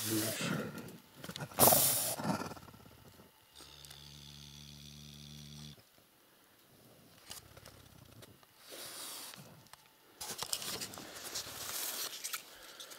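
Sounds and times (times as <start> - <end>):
rustling and scraping in dry grass: 10.2 - 12.9.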